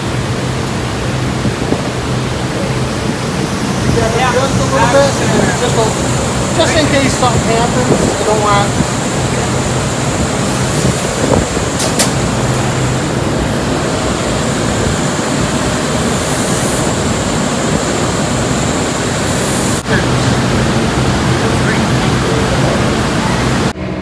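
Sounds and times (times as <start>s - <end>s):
buffing wheel whirring: 0.0s - 24.0s
low motor hum: 0.0s - 24.0s.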